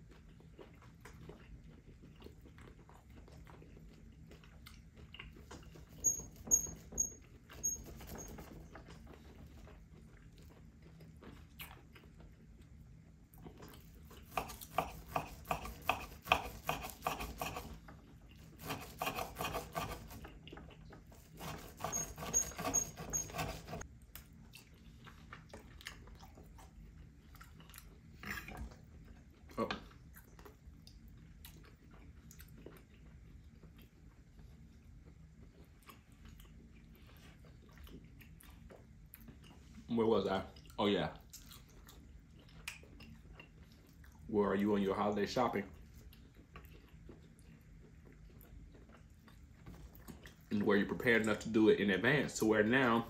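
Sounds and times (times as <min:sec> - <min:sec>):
knife sawing through steak: 0:14.2 - 0:17.8, 0:18.5 - 0:20.3, 0:21.2 - 0:23.8
knife and fork scraping and clicking: 0:21.3 - 0:23.8.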